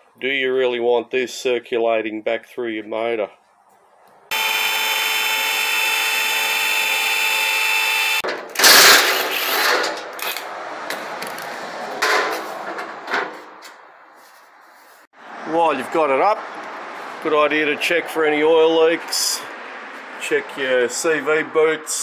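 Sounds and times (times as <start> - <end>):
cordless driver buzzing: 4.3 - 8.2
steady motor whine: 4.3 - 8.2.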